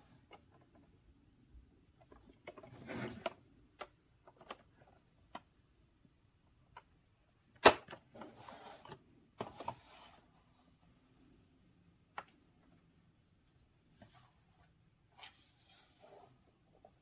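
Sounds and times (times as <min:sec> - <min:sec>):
cardboard scraping and rustling: 0:02.6 - 0:03.4, 0:08.1 - 0:10.4.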